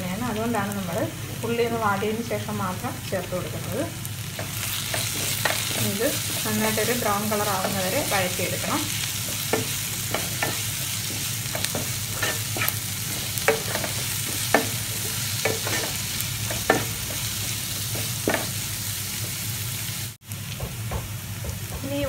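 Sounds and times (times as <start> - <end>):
onions sizzling in oil: 0.0 - 22.0
wooden spatula scraping a pan: 9.2 - 16.0.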